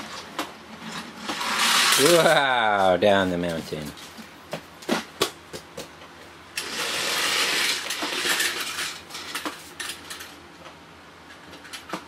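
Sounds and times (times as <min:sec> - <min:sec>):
plastic toy train clattering: 0:00.9 - 0:02.4, 0:06.6 - 0:10.3
toy train car clicking onto track: 0:06.6 - 0:10.3.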